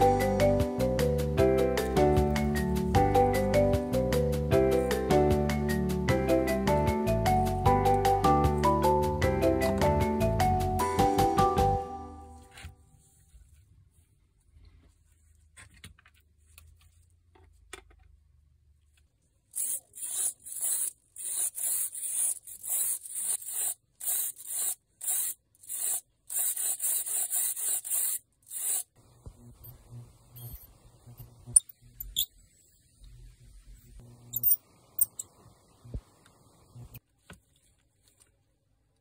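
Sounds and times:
faint low hum: 29.0s - 37.0s.

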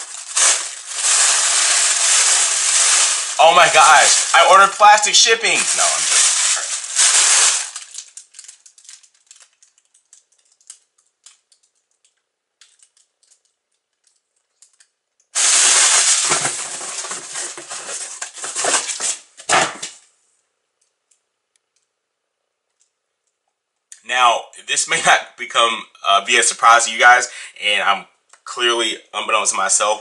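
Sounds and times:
plastic packing crinkling: 0.0s - 20.0s.

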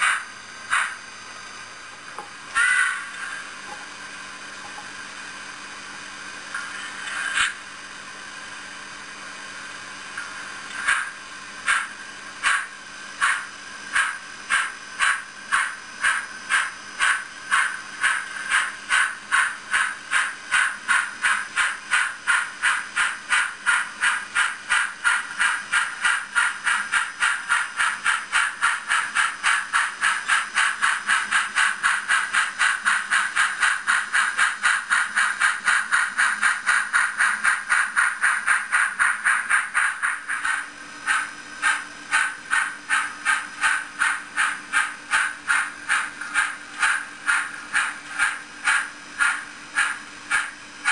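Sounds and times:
model locomotive chuffing: 0.0s - 50.9s.

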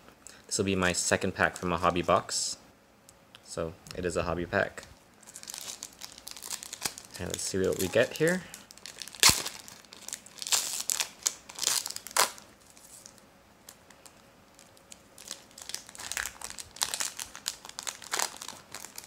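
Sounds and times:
foil wrapper crinkling: 5.2s - 19.0s.

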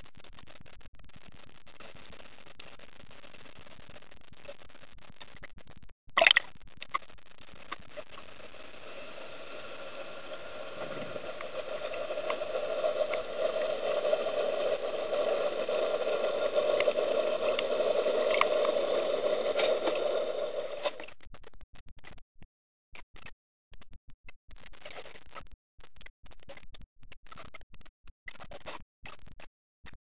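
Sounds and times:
underwater mechanical drone: 7.4s - 21.1s
faint clicks: 10.3s - 25.2s.

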